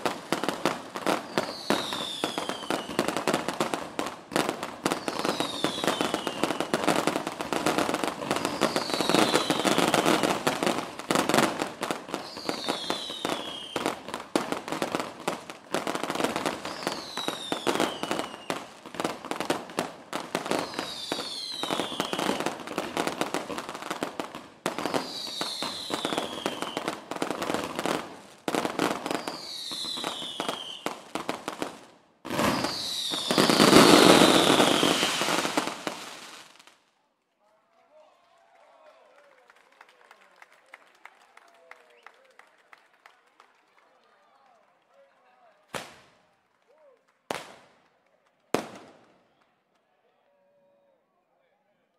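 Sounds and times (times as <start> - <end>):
fireworks bangs and crackles: 0.0 - 36.8, 45.7 - 46.2, 47.3 - 49.3
falling firework whistle: 1.1 - 3.1, 4.9 - 6.8, 8.3 - 10.3, 12.1 - 14.0, 16.5 - 18.7, 20.5 - 22.6, 24.8 - 26.9, 29.1 - 30.9, 32.4 - 36.0.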